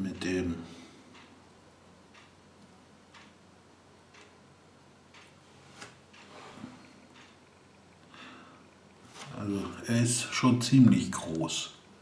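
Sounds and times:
faint clock ticking: 0.0s - 9.0s.

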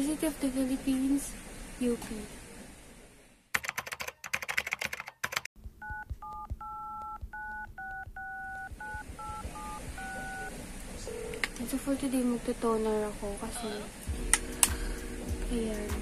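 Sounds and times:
keyboard typing clicks: 3.6s - 10.2s
telephone keypad tones: 3.6s - 10.5s.

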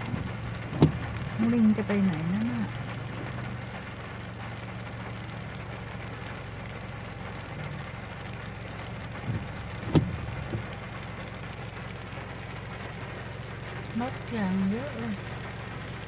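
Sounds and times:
low hum: 0.0s - 16.0s
steady rain: 0.0s - 16.0s
short knocks: 0.1s - 1.2s, 9.3s - 10.7s.

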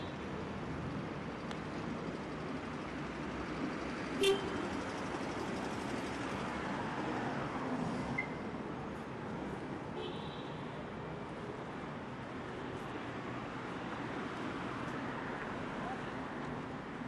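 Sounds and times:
street traffic: 0.0s - 17.0s
car horn toot: 4.2s - 4.6s.

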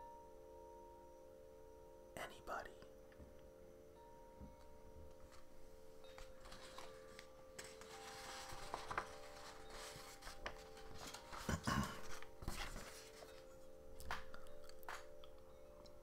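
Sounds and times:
rustling and handling noise: 4.5s - 16.0s.

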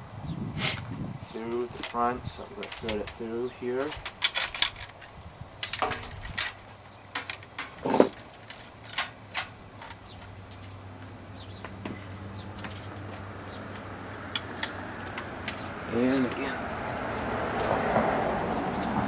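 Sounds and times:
clicks and knocks on handlebar: 11.6s - 17.8s.

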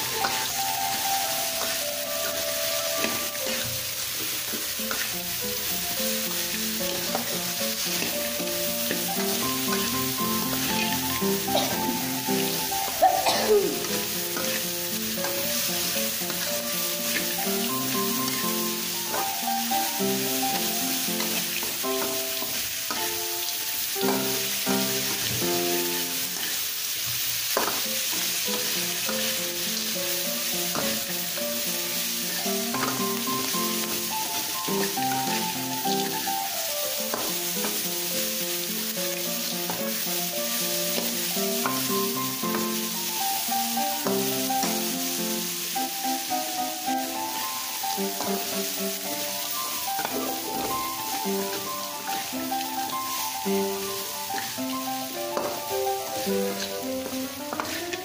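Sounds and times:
metal spatula scraping wok: 0.0s - 13.0s, 13.7s - 19.3s, 24.0s - 36.2s, 48.0s - 58.0s
background music: 0.0s - 26.5s, 28.0s - 58.0s
food sizzling: 0.0s - 58.0s
person sneezing: 13.0s - 13.8s.

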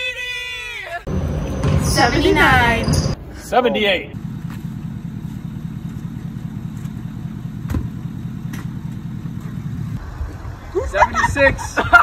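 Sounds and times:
pickup truck engine running: 4.2s - 10.6s.

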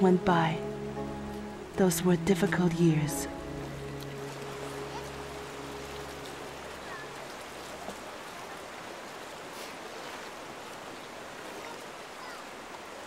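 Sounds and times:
held music chord: 0.0s - 7.9s
river running over rocks: 0.0s - 13.0s.

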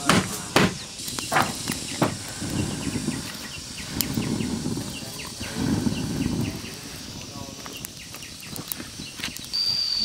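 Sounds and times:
hammer striking wood: 0.0s - 2.2s.

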